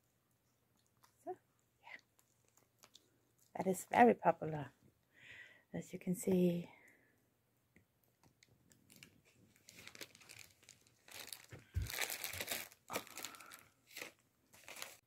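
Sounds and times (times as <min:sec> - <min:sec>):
treat bags crinkling: 0:08.4 - 0:15.0.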